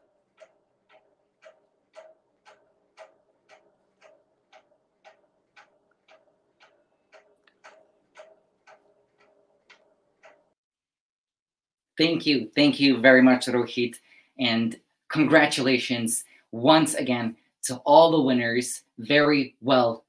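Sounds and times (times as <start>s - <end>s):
clock ticking: 0.0s - 10.6s.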